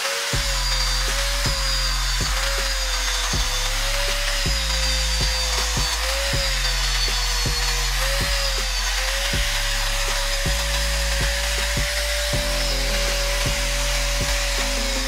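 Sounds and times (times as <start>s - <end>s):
angle grinder grinding steel: 0.0s - 15.0s
background music with steady beat: 0.3s - 15.0s.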